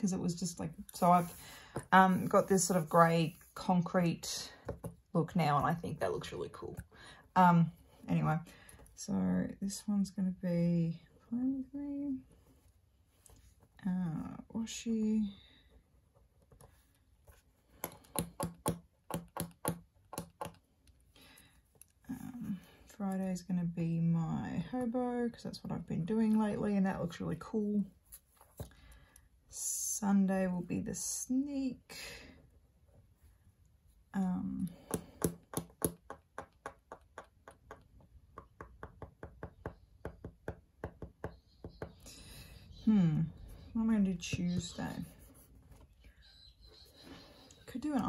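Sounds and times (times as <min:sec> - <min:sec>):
pen tapping on paper: 0:17.8 - 0:20.6, 0:34.8 - 0:42.0.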